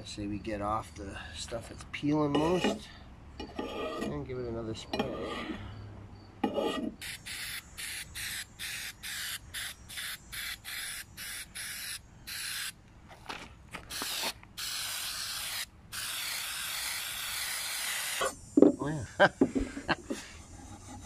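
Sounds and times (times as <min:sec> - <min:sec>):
aerosol can spraying: 0:07.0 - 0:12.8, 0:13.9 - 0:18.4.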